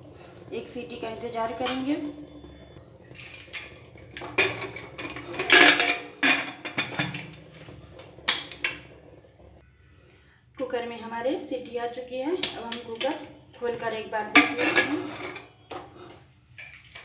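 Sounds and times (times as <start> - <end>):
crickets chirring: 0.0 - 17.0
metal pot lid clanking and scraping: 1.3 - 9.0, 14.2 - 16.8.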